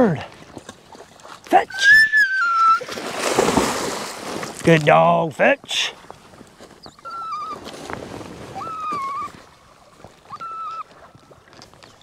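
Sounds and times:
faint water sounds: 0.0s - 12.0s
dog whining: 1.7s - 2.9s, 6.8s - 7.6s, 8.6s - 9.4s, 10.3s - 10.9s.

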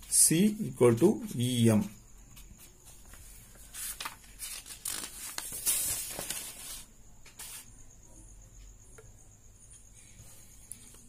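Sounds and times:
paper rustling and sliding: 3.1s - 7.7s.

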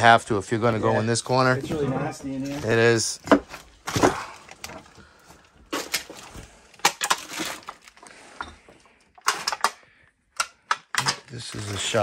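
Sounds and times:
footsteps on trash-strewn floor: 1.6s - 9.5s.

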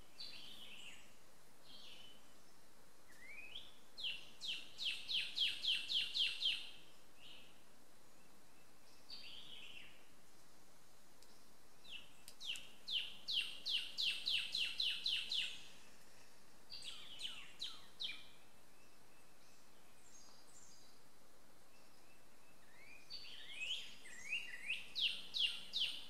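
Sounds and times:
songbird singing: 0.0s - 26.0s.

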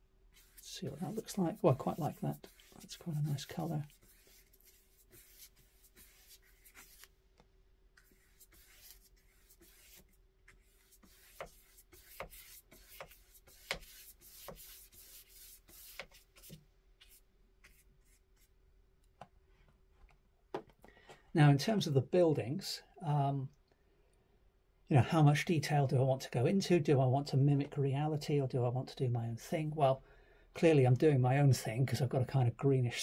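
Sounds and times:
paintbrush swishing on paper: 0.3s - 7.2s, 8.0s - 18.5s.

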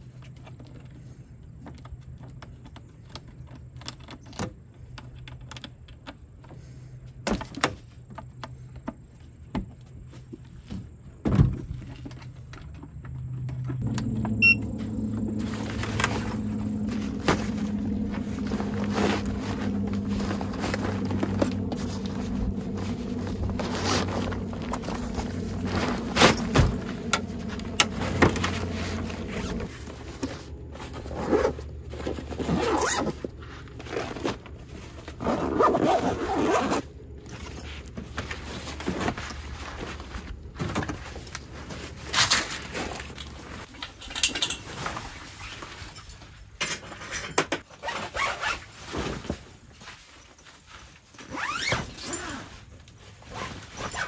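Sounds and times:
steady low hum: 11.8s - 43.7s
zippers being pulled: 14.4s - 37.7s, 47.8s - 48.7s, 51.2s - 52.6s, 53.2s - 54.0s
nylon bags rustling: 14.7s - 44.0s, 47.7s - 54.0s.

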